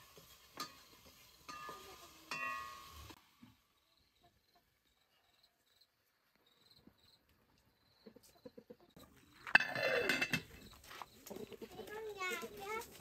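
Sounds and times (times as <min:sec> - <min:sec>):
utensils clinking on cooking pot: 0:00.0 - 0:03.2, 0:09.5 - 0:10.7
insect chirping: 0:03.6 - 0:08.1.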